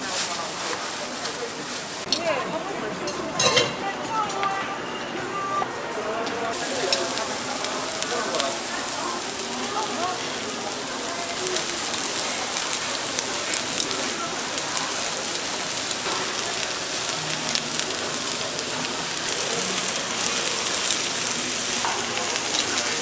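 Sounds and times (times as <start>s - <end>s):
batter sizzling in griddle pan: 6.5s - 23.0s.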